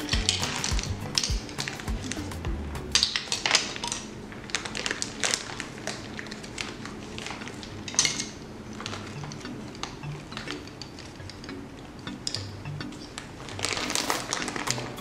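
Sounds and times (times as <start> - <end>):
sugar bag rustling: 2.9 - 11.1, 13.1 - 15.0.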